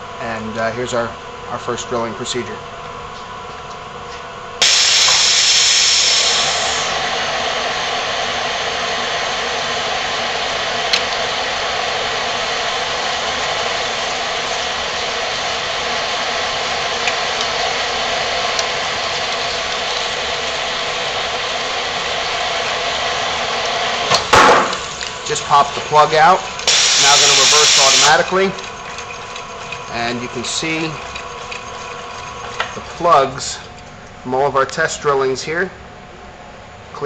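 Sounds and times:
air-powered drill boring through steel: 4.6 - 24.1, 24.7 - 33.3.

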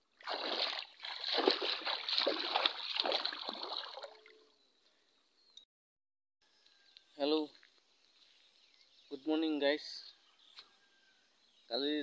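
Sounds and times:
shallow water splashing: 0.1 - 4.3.

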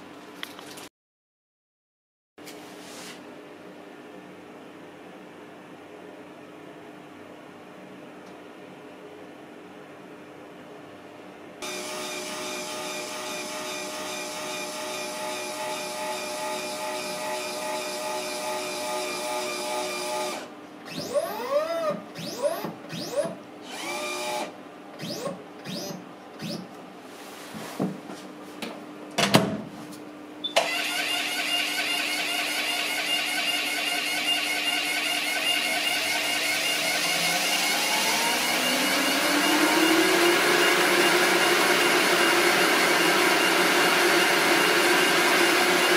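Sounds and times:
steady machine hum: 3.3 - 27.1
short whirs rising and falling: 11.6 - 26.7, 30.6 - 45.9
abrasive cut-off wheel running: 30.6 - 45.9
rising whine: 36.8 - 45.9.

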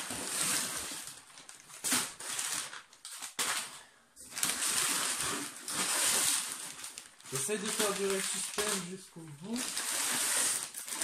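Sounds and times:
packing paper crinkling: 0.0 - 11.0.

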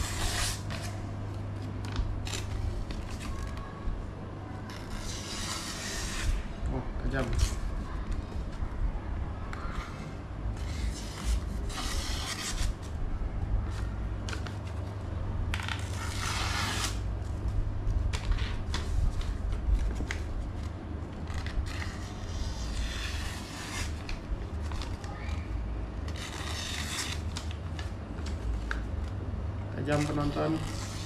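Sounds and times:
steady low hum: 0.0 - 31.0
blade slicing paper: 15.6 - 17.0, 26.1 - 27.6.

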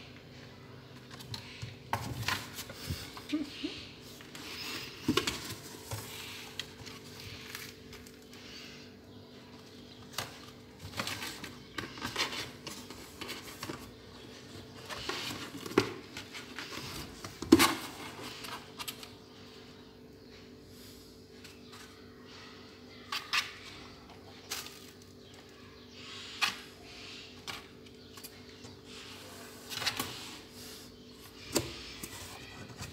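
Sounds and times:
rustling and scraping in cardboard box: 10.8 - 19.2.

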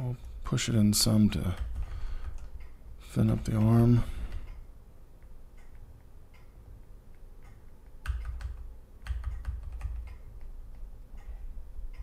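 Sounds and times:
mouse and keyboard clicks: 7.4 - 11.3.

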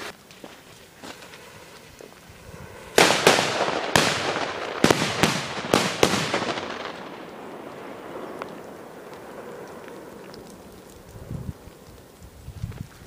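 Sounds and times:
firecrackers exploding: 2.8 - 8.8.

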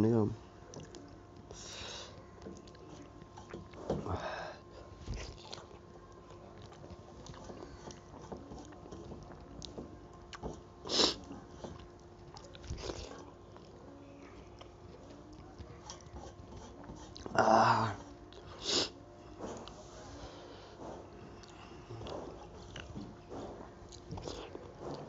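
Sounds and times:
faint steady hum: 0.0 - 25.0
chewing with wet mouth clicks: 0.7 - 1.6, 2.2 - 3.8, 5.1 - 10.5, 11.2 - 16.2, 21.4 - 23.1, 23.8 - 25.0.

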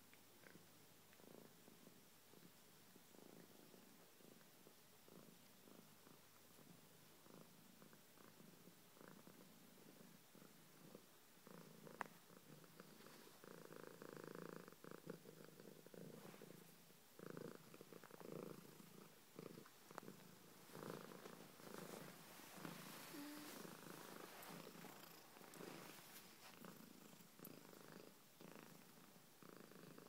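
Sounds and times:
cat purring: 0.1 - 30.0.

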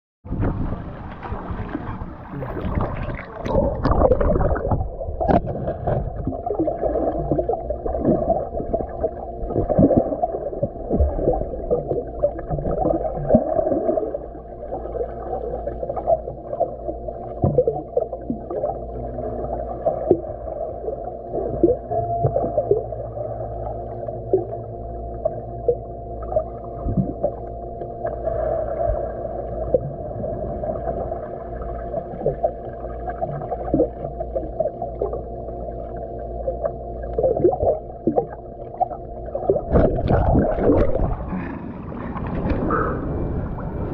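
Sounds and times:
swimmers diving and kicking: 0.2 - 43.9
pool water splashing: 0.3 - 21.8
underwater gurgle and bubbling: 0.3 - 43.9.

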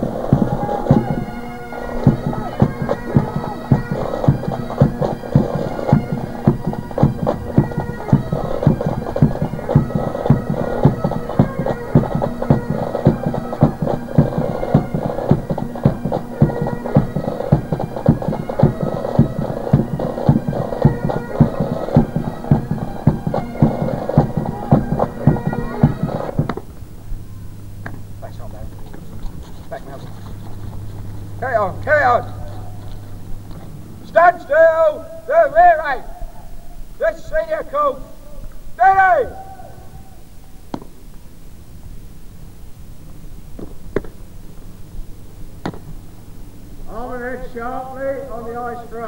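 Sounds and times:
bagpipes playing a march: 0.0 - 26.6, 29.5 - 36.0.

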